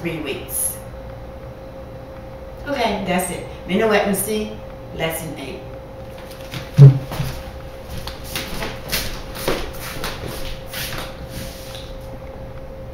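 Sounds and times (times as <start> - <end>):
rustling and shuffling: 6.1 - 12.2
dull thump of chair: 6.6 - 7.4.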